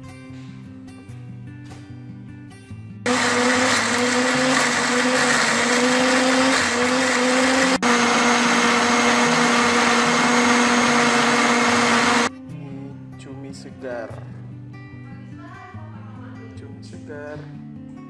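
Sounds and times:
blender running: 3.1s - 12.3s.

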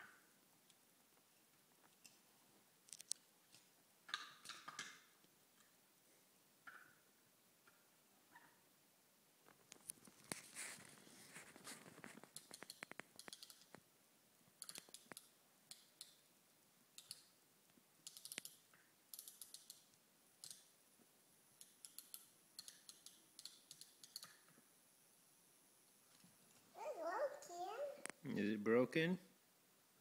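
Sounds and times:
toys clicking and rattling: 12.3s - 13.8s.

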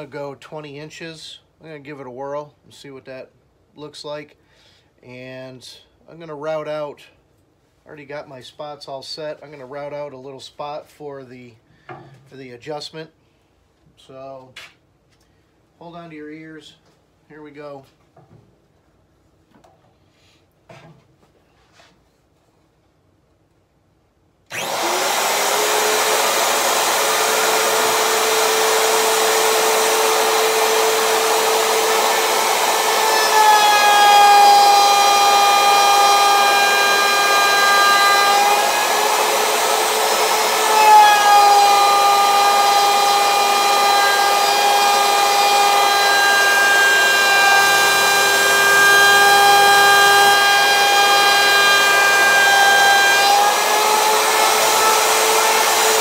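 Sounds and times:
router bit cutting wood: 24.5s - 56.0s
router high whine: 24.5s - 56.0s.

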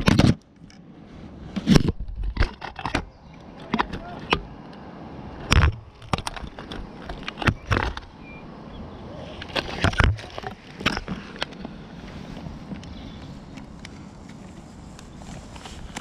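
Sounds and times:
handling knocks and scrapes: 1.0s - 4.5s, 9.2s - 16.0s.

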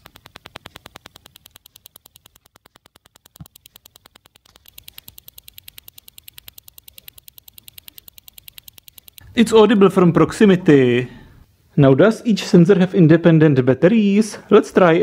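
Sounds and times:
parking sensor ticking: 0.0s - 9.3s.

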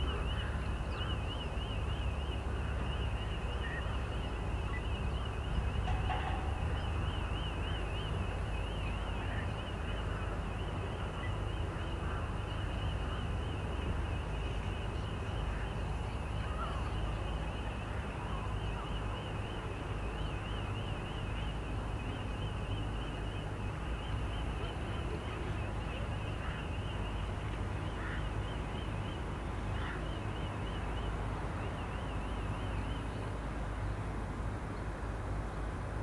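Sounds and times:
steady low rumble: 2.4s - 10.3s.

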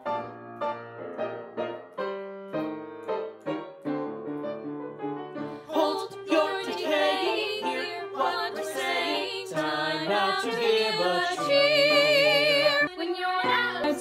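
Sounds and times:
group singing together: 5.5s - 14.0s.

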